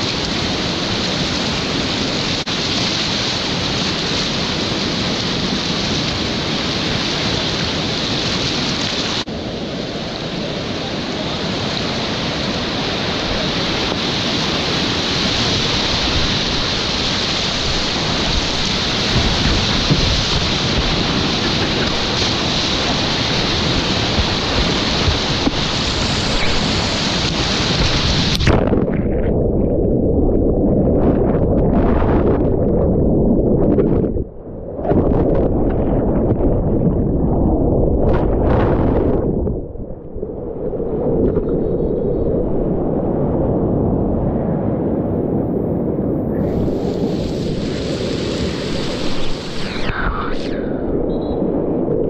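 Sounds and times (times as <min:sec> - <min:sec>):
water splashes: 0:00.0 - 0:32.8, 0:46.4 - 0:52.0
whitewater rapids rushing: 0:00.1 - 0:28.4, 0:46.4 - 0:50.8.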